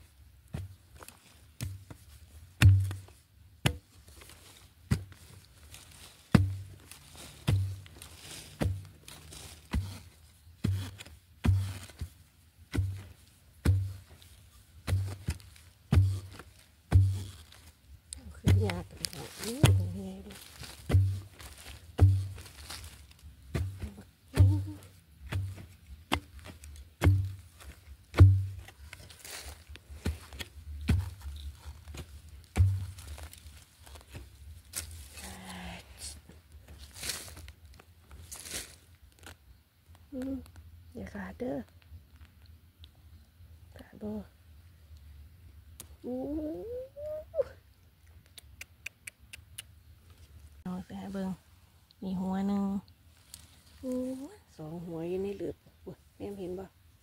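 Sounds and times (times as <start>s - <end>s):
spade chopping into soil: 2.6s - 3.9s, 7.4s - 12.1s, 12.7s - 14.0s, 14.8s - 17.4s, 18.3s - 33.3s.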